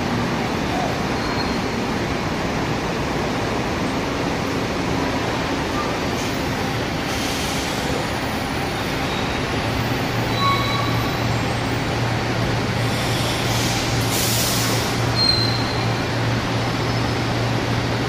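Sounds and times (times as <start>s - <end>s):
bus engine drone: 0.0s - 18.0s
short air hiss: 12.9s - 15.0s.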